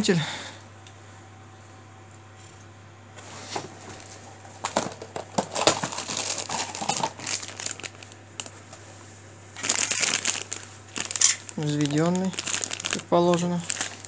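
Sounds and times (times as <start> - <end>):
plastic bag crinkling: 3.9 - 8.8, 9.6 - 14.0.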